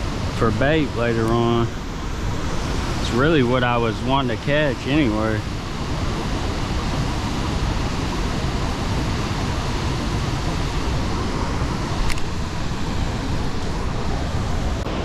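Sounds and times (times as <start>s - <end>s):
water rushing through dam gates: 0.0s - 15.0s
short click: 12.0s - 12.3s.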